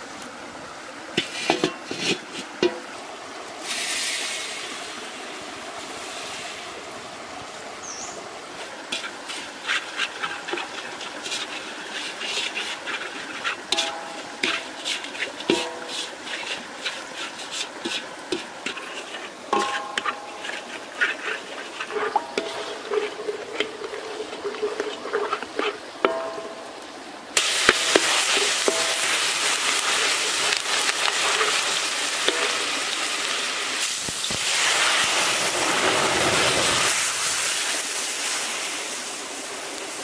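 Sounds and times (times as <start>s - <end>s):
metal spatula scraping a wok: 1.2s - 2.8s, 8.9s - 26.6s, 27.4s - 32.8s
wok ringing: 13.7s - 14.6s, 15.5s - 16.0s, 19.5s - 20.8s, 26.0s - 26.8s, 27.4s - 29.9s, 32.2s - 32.9s.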